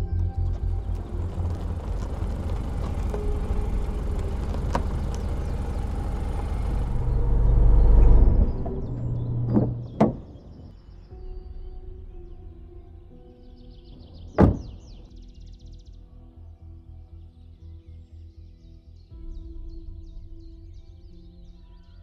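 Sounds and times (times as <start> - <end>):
car engine and tyres: 0.0 - 15.2.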